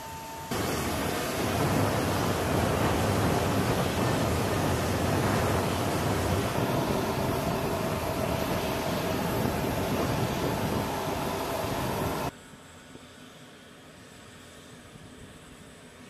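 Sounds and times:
airfield background noise: 0:00.0 - 0:16.0
truck engine running: 0:00.5 - 0:12.3.

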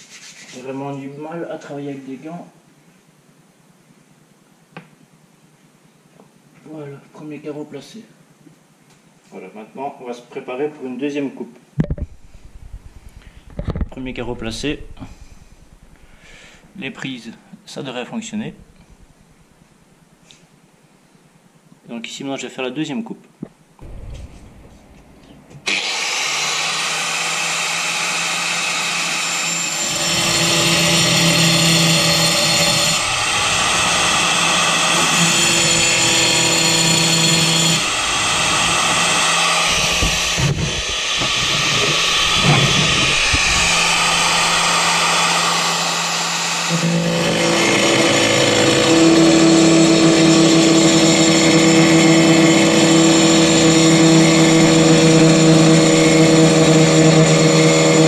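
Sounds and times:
blade cutting ceramic tile: 0:25.7 - 0:58.0
power cutter motor whine: 0:25.7 - 0:58.0.

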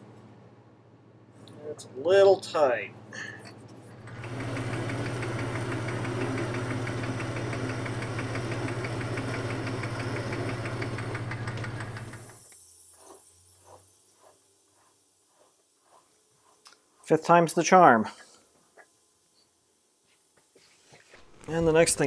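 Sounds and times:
metal lathe humming and ticking: 0:04.0 - 0:14.3.

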